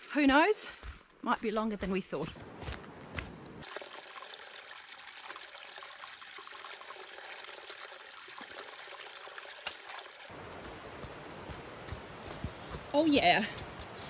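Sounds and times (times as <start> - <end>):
water trickling over rock: 3.4 - 10.3.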